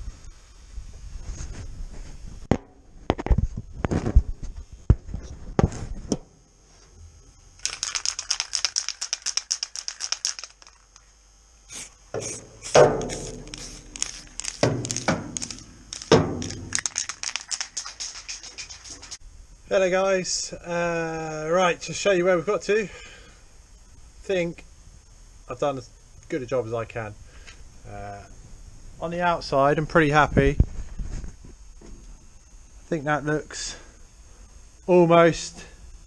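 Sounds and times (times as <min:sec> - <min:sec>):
fast rattling clicks: 0:07.6 - 0:11.1, 0:13.0 - 0:19.2.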